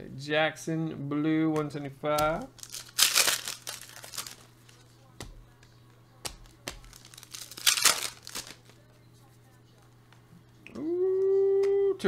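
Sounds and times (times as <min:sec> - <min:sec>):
cards clicking: 0:01.6 - 0:08.8
foil wrapper crinkling: 0:02.2 - 0:05.3, 0:06.2 - 0:08.8.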